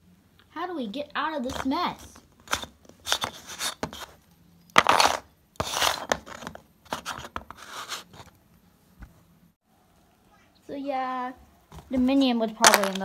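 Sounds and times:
plastic toy scraping craft pieces: 0:01.5 - 0:04.2, 0:04.8 - 0:08.3.

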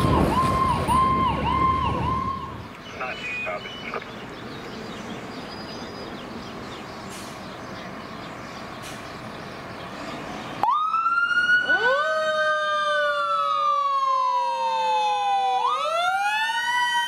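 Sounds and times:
fire truck sirens wailing: 0:00.0 - 0:04.1, 0:10.6 - 0:17.0.

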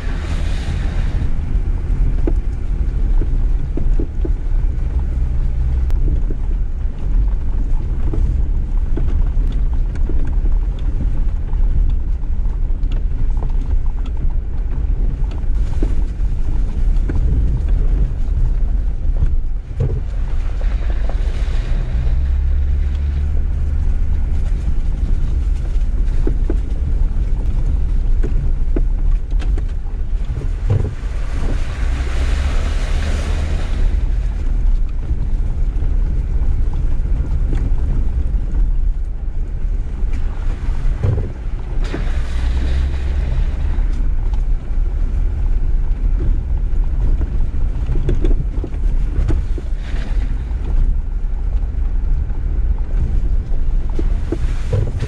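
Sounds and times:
engine and tyres rumbling: 0:00.0 - 0:55.0
knocks and rattles: 0:40.8 - 0:44.6.

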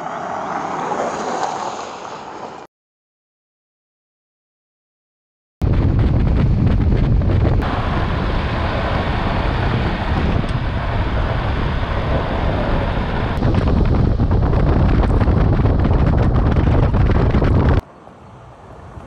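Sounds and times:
road and tyre rumble: 0:00.0 - 0:02.7, 0:05.6 - 0:19.0
wind buffeting microphone: 0:05.6 - 0:17.8.

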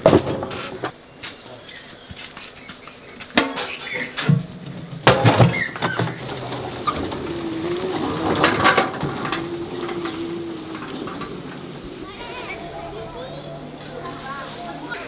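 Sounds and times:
metal cooking pots clanking: 0:03.4 - 0:14.7
vehicle engine running: 0:06.1 - 0:15.0.

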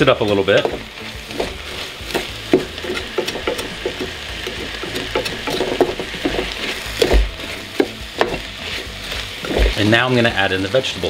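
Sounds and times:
utensil scraping a pot: 0:00.0 - 0:10.0.

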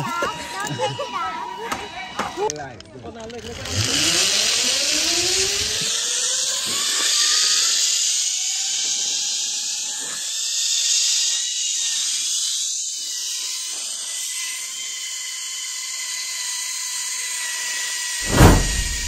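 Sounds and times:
zip-line pulleys whining: 0:03.1 - 0:17.8.

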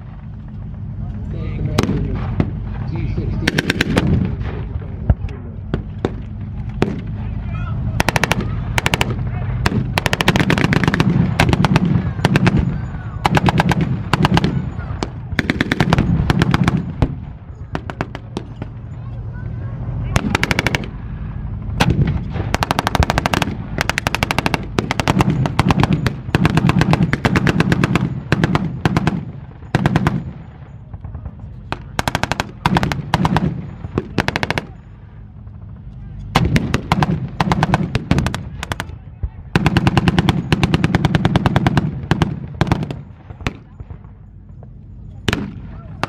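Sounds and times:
machine gun firing bursts: 0:03.4 - 0:04.4, 0:08.0 - 0:18.8, 0:20.2 - 0:21.0, 0:21.8 - 0:34.8, 0:36.3 - 0:38.9, 0:39.5 - 0:43.8.

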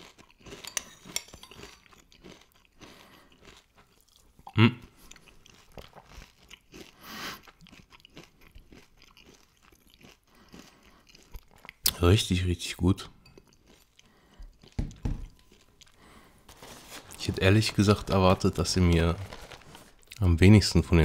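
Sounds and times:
chewing crunchy cereal: 0:00.0 - 0:12.3, 0:13.4 - 0:20.3.

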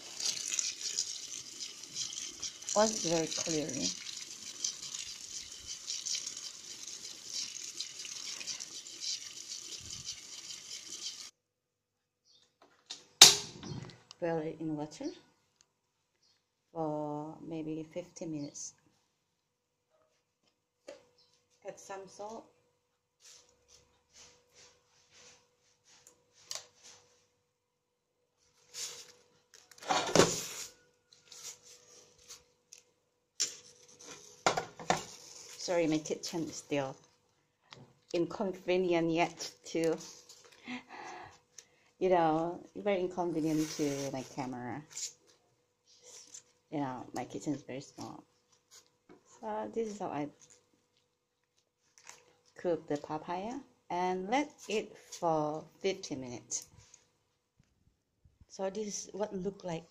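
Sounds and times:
leaves rustling: 0:43.2 - 0:45.2.

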